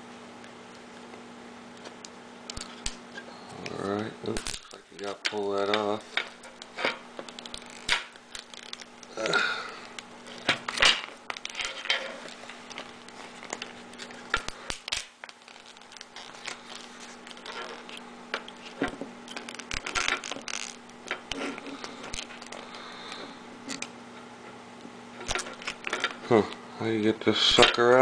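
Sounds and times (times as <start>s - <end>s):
low steady hum: 0.0s - 28.0s
plastic crinkling: 4.3s - 24.0s, 25.2s - 26.4s.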